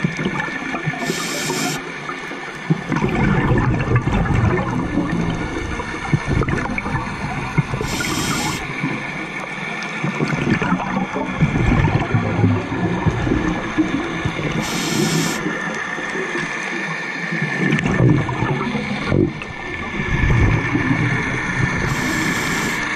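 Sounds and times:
exhaled bubbles gurgling: 0.0 - 22.9
scuba regulator inhale hiss: 1.0 - 1.8, 7.8 - 8.7, 14.6 - 15.6, 21.8 - 22.9.

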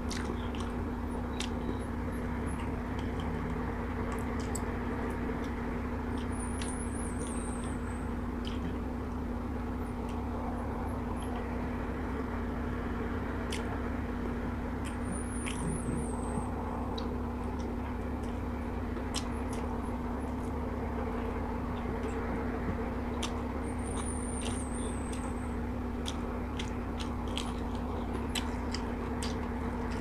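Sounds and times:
chicken wings being bitten and chewed: 0.0 - 8.8, 21.7 - 30.0
steady low hum: 0.0 - 30.0.

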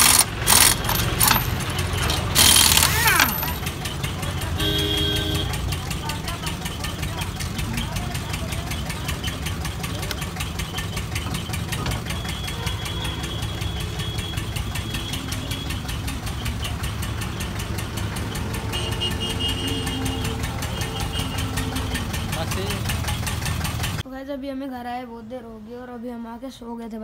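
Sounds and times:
engine knocking and humming: 0.0 - 24.1
faint voices: 5.5 - 10.8.

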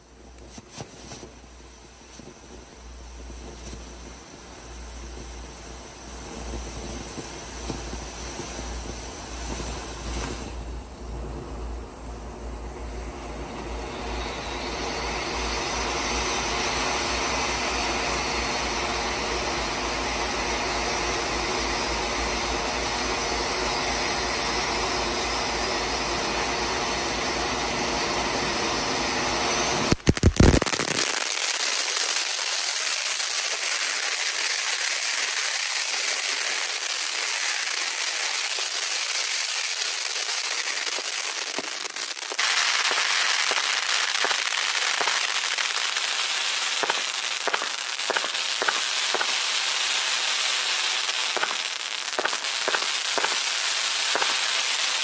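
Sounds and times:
firework fountains hissing and crackling: 0.0 - 55.0
sharp firework pops: 0.2 - 10.7, 29.9 - 55.0.

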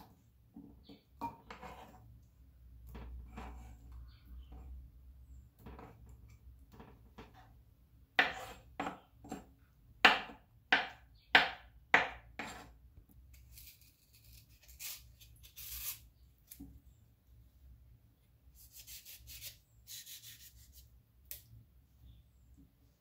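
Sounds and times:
knife chopping on wooden board: 8.2 - 12.7.

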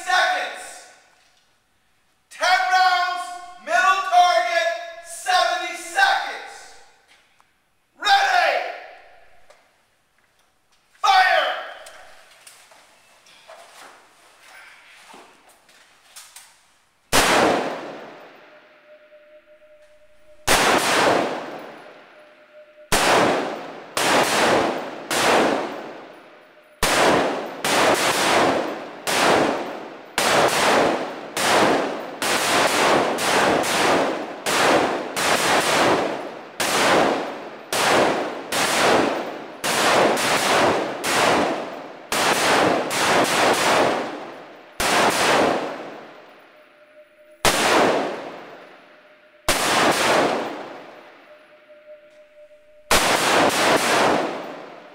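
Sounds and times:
echoing rifle shots: 17.1 - 54.9.

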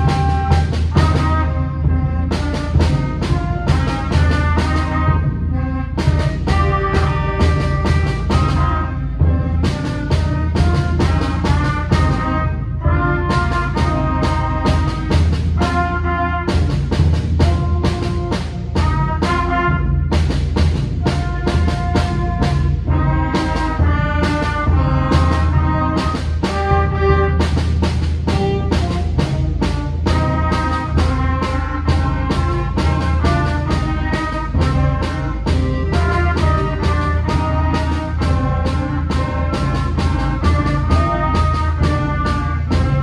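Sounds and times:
concert band playing: 0.0 - 43.0.

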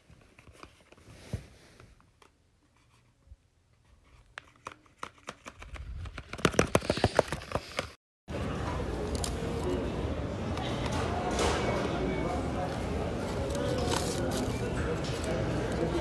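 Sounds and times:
paper crinkling and rustling: 12.7 - 16.0.

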